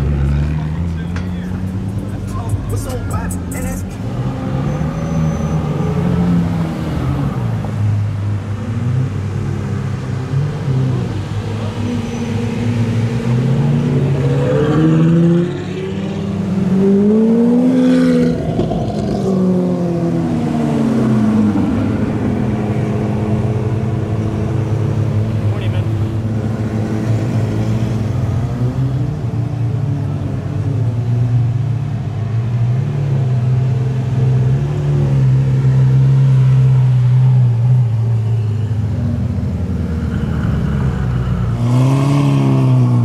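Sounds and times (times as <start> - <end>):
supercar engines revving: 0.0 - 43.0.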